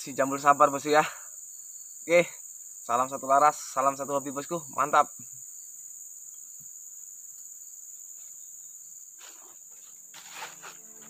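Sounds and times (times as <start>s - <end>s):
high-pitched insect chorus: 0.0s - 11.0s
leaves and clothing rustling: 5.6s - 11.0s.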